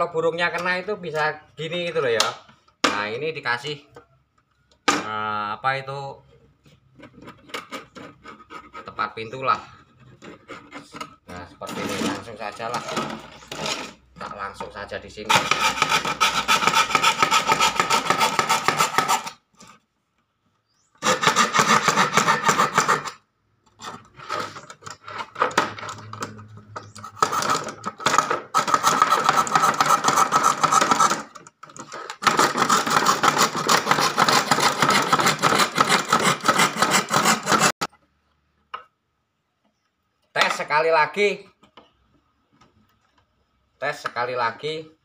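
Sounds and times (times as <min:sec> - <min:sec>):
hand saw cutting wood: 0:07.3 - 0:09.2, 0:09.9 - 0:14.0, 0:15.3 - 0:19.7, 0:21.0 - 0:23.2, 0:27.1 - 0:37.9.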